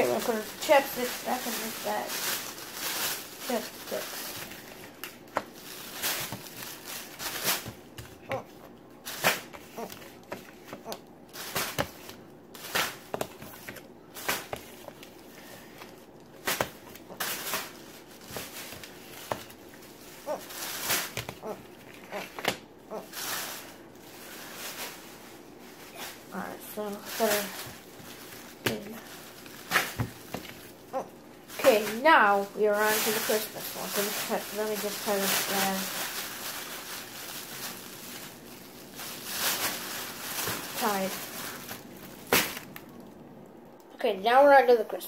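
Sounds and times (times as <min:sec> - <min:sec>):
plastic bag rustling: 0:00.0 - 0:43.4.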